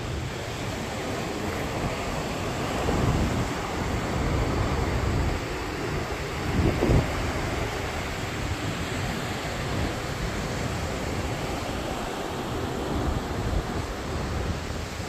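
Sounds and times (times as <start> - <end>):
ocean surf rushing: 0.0 - 15.0
wind buffeting microphone: 0.0 - 15.0.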